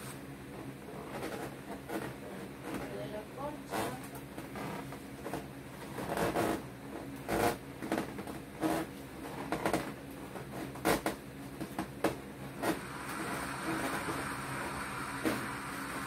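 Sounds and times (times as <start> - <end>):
balloons rubbing and squeaking: 3.6 - 6.7, 12.5 - 16.0.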